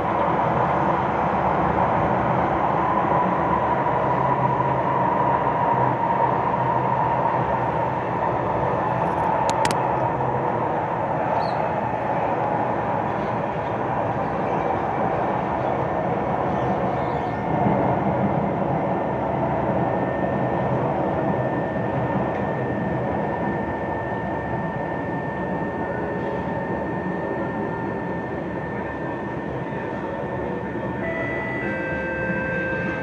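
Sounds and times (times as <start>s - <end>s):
train wheels and motors rumbling: 0.0s - 33.0s
thin high whine: 24.8s - 33.0s.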